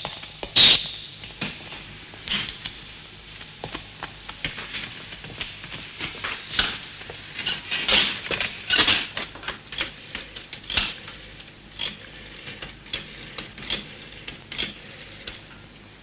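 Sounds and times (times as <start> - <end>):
rotary dial clicking and ratcheting: 9.7 - 15.4.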